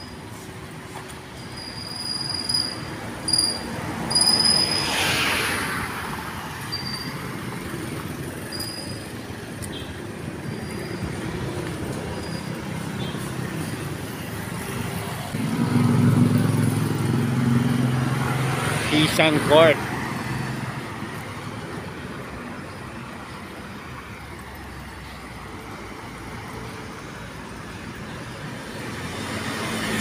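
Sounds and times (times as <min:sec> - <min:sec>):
road traffic: 0:00.0 - 0:30.0
vehicle whooshing past: 0:04.0 - 0:06.5
loud engine passing close: 0:15.2 - 0:20.8.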